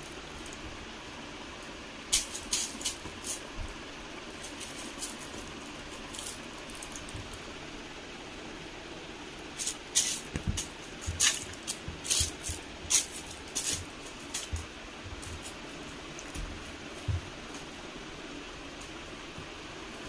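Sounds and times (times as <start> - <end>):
soft bumps: 10.2 - 17.8.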